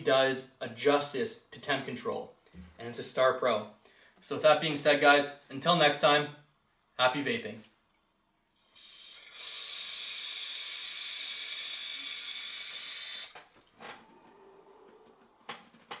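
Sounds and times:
breathy exhale: 8.7s - 13.3s
vape drag hissing: 8.8s - 13.4s.

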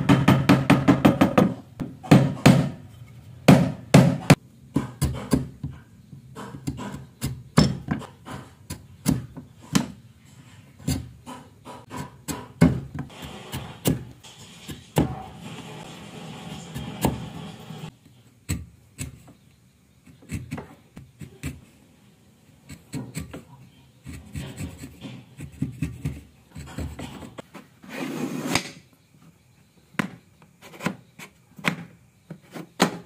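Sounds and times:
chisel scraping wood: 22.7s - 28.7s.

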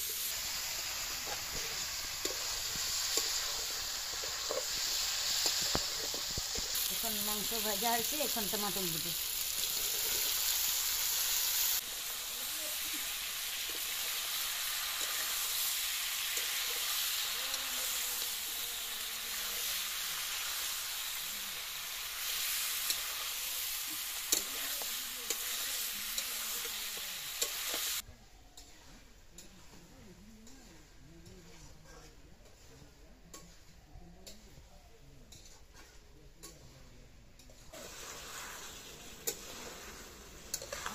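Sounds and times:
food sizzling in hot oil: 0.0s - 28.8s, 37.4s - 40.9s
metal spatula scraping a pan: 13.5s - 20.8s, 28.6s - 34.6s, 35.3s - 36.8s, 37.4s - 40.9s.

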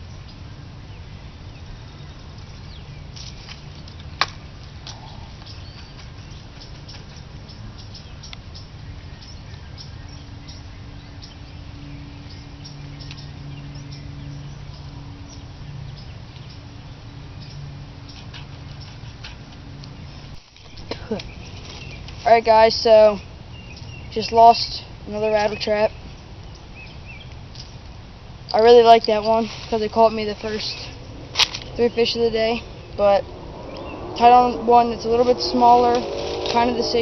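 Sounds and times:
open-air background rumble: 0.0s - 37.0s.

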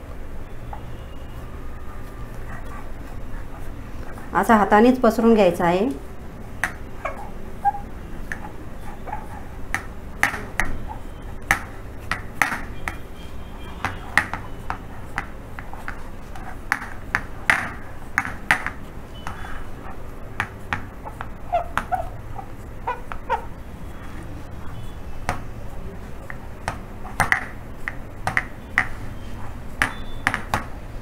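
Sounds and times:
fingers tapping dough on metal pan: 6.6s - 6.9s, 9.2s - 19.5s, 20.4s - 23.6s, 25.2s - 25.5s, 26.2s - 30.8s.

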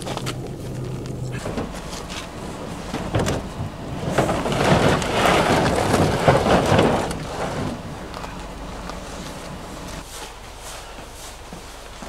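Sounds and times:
plastic kayak scraping on tailgate: 1.3s - 10.0s.

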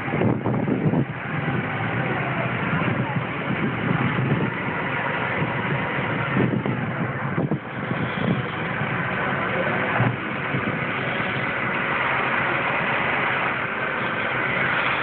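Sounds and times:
truck engine idling: 0.0s - 15.0s.

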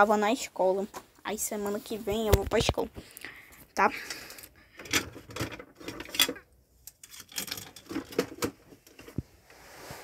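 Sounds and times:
hard plastic toys clattering: 4.0s - 9.2s.

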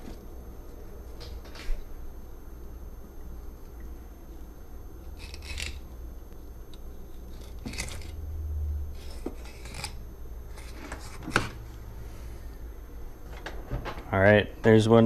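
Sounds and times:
low steady hum: 0.0s - 15.0s
knife scraping fish carcass: 5.2s - 5.9s, 7.1s - 8.2s, 9.0s - 11.5s.

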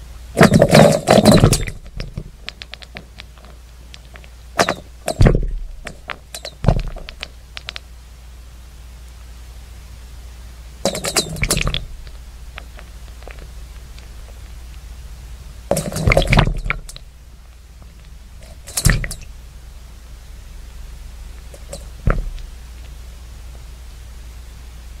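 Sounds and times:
steady low hum: 0.0s - 25.0s
knocks and thuds: 0.4s - 2.4s, 4.6s - 7.2s, 21.7s - 22.4s
faint clicks: 6.1s - 7.9s.

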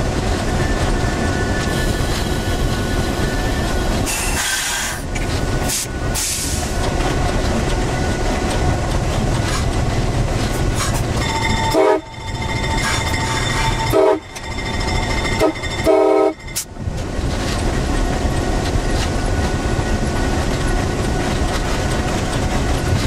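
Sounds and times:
diesel locomotive rumbling: 0.0s - 23.0s
hiss bursts: 4.1s - 5.0s
locomotive air horn: 11.6s - 12.2s, 13.8s - 14.4s, 15.4s - 16.7s.

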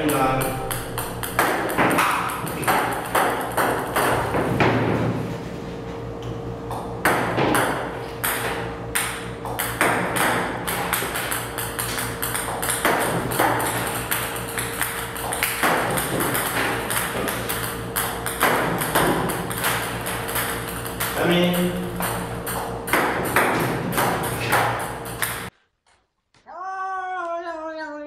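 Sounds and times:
table tennis balls clicking: 0.0s - 4.5s, 6.7s - 25.5s
steady hum: 0.0s - 25.5s.

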